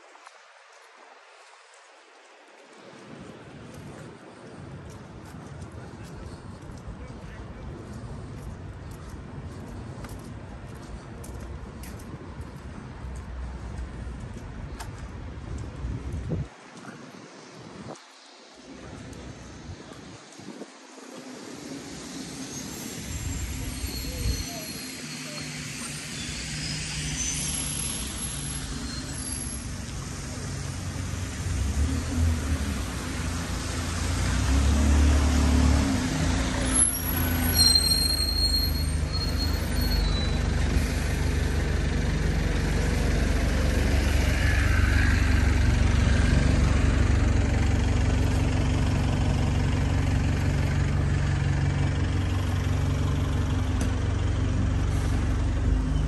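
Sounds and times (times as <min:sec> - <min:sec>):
heavy vehicle engine hum: 0:21.2 - 0:56.0
high brake squeal: 0:21.4 - 0:31.3, 0:35.0 - 0:41.6.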